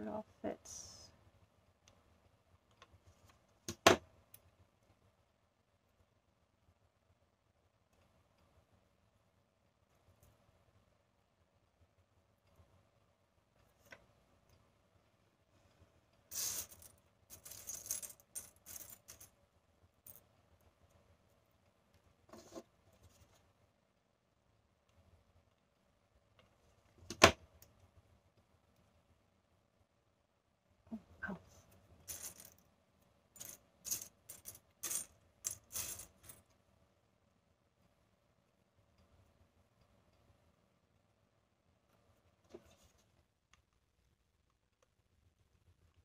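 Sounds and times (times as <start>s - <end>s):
shells clinking and rattling: 16.3s - 19.4s, 32.0s - 32.7s, 33.4s - 36.5s.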